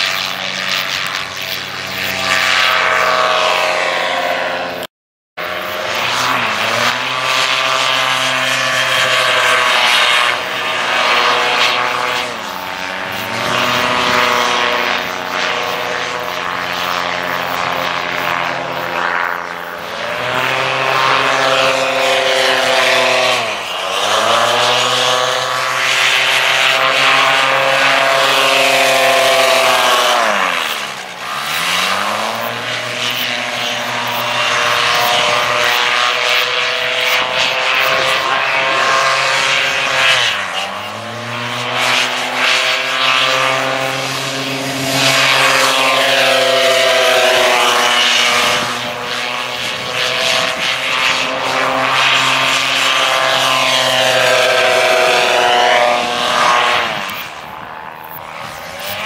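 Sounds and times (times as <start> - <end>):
paramotor engine buzzing drone: 0.0 - 59.0.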